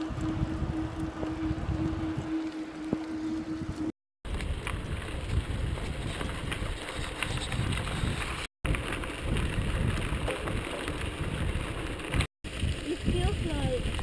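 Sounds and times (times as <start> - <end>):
wind noise on microphone: 0.0 - 14.0
bike clicks and rattles: 4.3 - 12.7.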